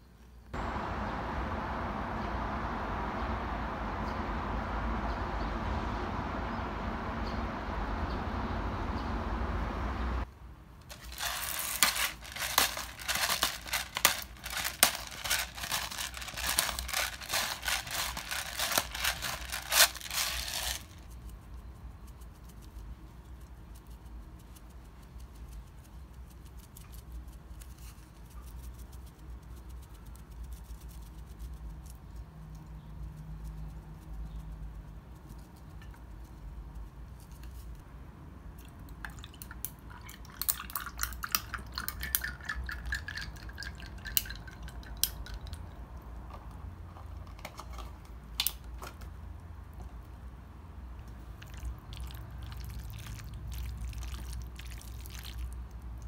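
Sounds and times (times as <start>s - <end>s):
faint low hum: 0.0s - 56.0s
dense crinkling and crackling: 10.8s - 21.1s.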